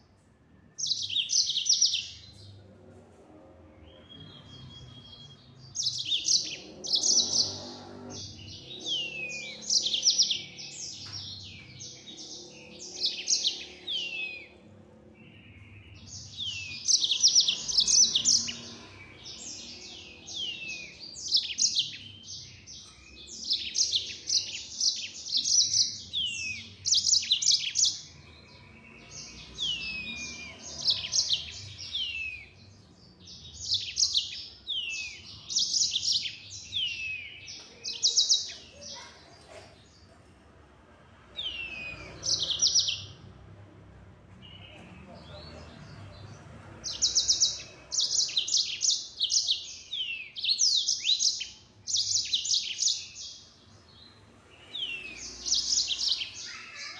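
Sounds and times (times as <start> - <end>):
canary singing rapid trills: 3.9 - 39.2.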